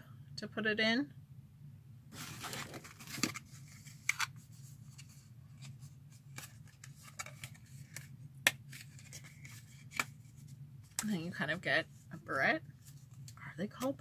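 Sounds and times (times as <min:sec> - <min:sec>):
paper packaging rustling: 0:02.1 - 0:10.5.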